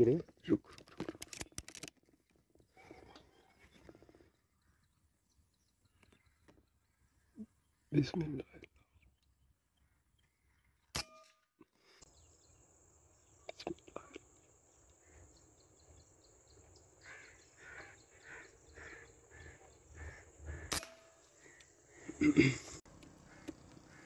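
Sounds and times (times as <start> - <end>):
birds calling: 2.5 - 24.0
air rifle shots: 20.6 - 21.2.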